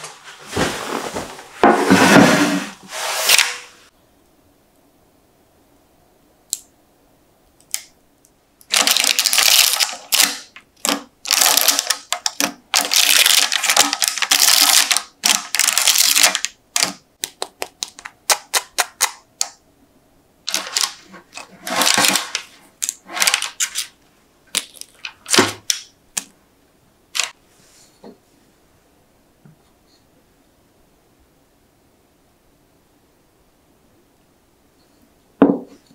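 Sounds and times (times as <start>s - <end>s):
parchment paper crackling: 8.7s - 19.2s, 20.5s - 25.5s.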